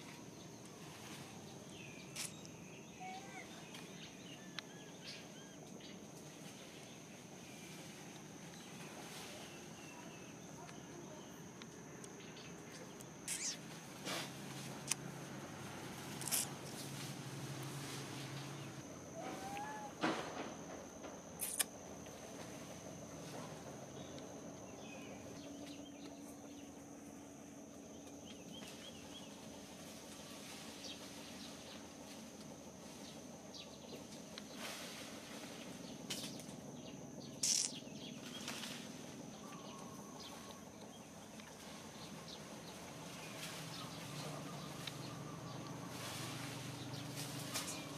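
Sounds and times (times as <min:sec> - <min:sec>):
faint bird chirps: 0:01.5 - 0:06.0, 0:12.2 - 0:13.8, 0:18.5 - 0:20.0, 0:36.2 - 0:38.6.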